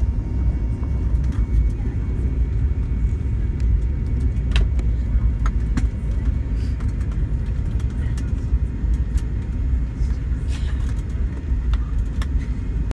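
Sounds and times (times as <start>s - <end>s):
low engine and wheel rumble: 0.0s - 12.9s
light clicks and rattles: 3.6s - 12.6s.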